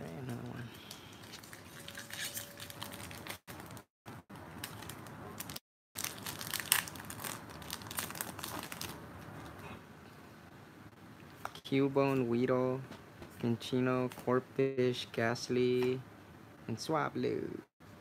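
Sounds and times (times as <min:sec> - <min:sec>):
foil wrapper crinkling and tearing: 0:01.2 - 0:03.8, 0:04.4 - 0:09.0.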